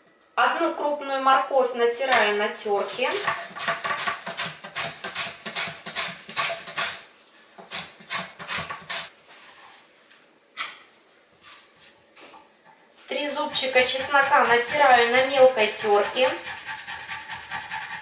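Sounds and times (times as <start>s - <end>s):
carrot rasping on a grater: 3.2s - 7.0s, 7.6s - 9.1s, 13.3s - 18.0s.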